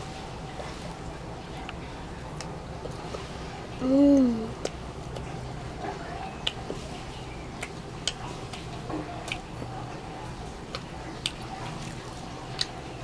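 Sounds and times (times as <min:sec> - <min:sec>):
child chewing with wet smacks: 0:00.5 - 0:13.0.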